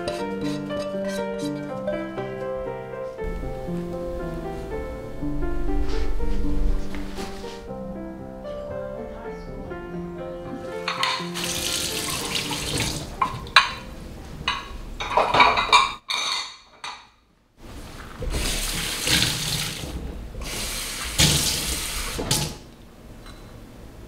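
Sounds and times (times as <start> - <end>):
tap water running into sink: 10.9 - 13.8, 18.0 - 22.7.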